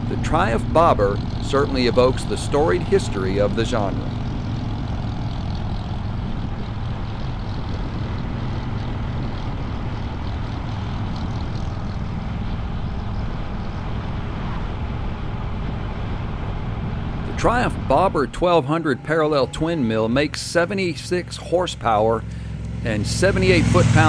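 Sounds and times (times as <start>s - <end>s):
motorcycle engine cruising: 0.0s - 24.0s.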